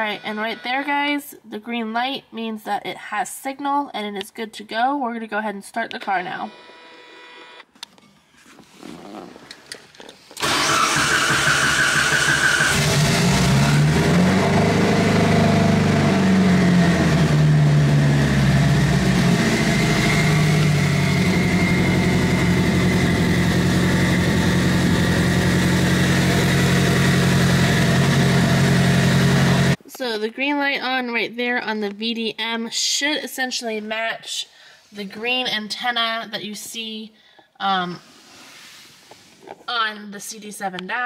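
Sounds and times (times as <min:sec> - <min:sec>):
car starter cranking: 0:10.4 - 0:15.6
car engine revving and idling: 0:10.4 - 0:29.8.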